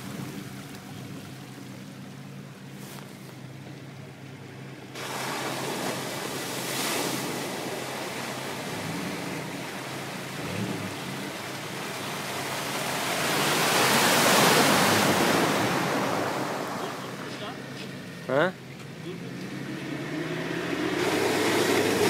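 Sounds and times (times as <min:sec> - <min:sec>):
faint car engine hum: 0:00.0 - 0:22.0.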